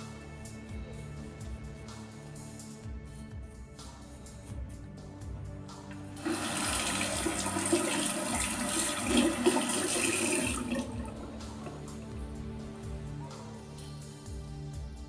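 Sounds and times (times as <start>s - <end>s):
water running from tap: 6.2s - 11.5s.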